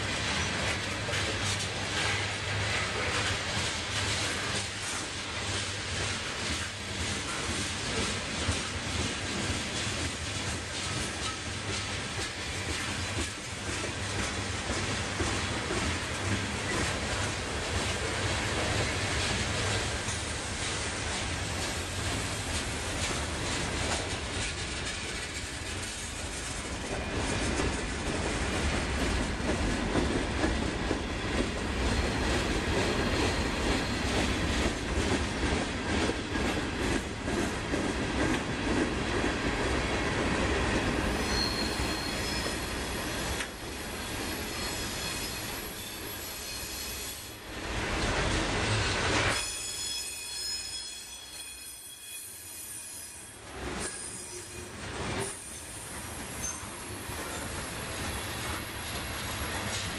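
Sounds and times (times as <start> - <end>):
train wheels clattering on rails: 0.0 - 52.4, 53.3 - 59.9
high wheel squeals: 41.1 - 47.4, 48.8 - 59.8.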